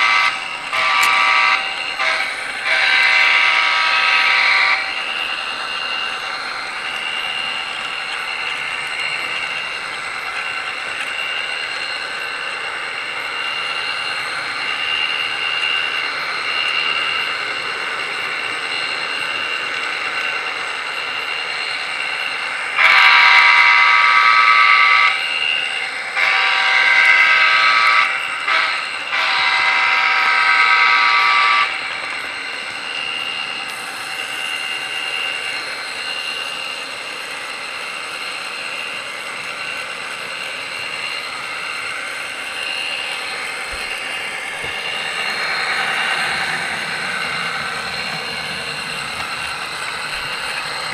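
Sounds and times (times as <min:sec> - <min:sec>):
train horn blasts: 0:00.0 - 0:05.0, 0:22.8 - 0:25.2, 0:26.2 - 0:31.8
model train whirring: 0:00.0 - 0:50.9.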